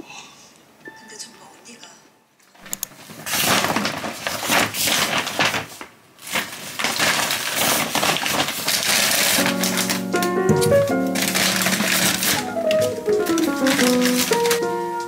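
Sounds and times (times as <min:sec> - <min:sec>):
crisp crunching of food: 0:06.3 - 0:15.0.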